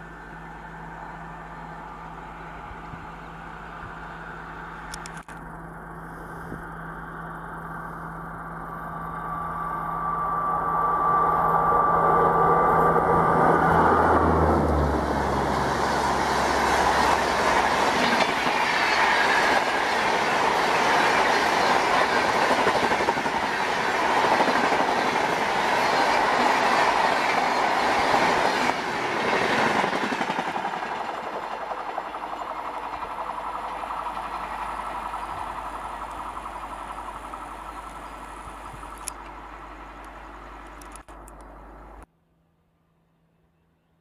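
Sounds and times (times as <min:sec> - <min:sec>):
train wheels running on rails: 0:07.3 - 0:42.0.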